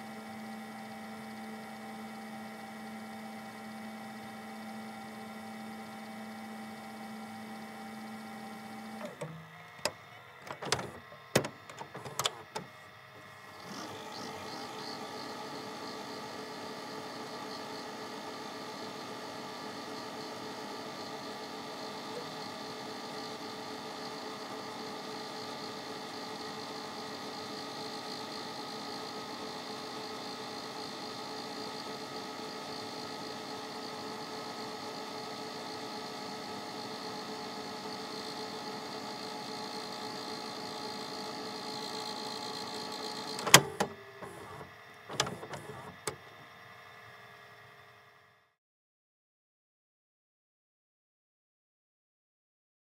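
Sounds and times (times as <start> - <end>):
tape winding whir: 0.0 - 47.1
mechanism click and clunks: 9.0 - 12.7, 43.3 - 46.3.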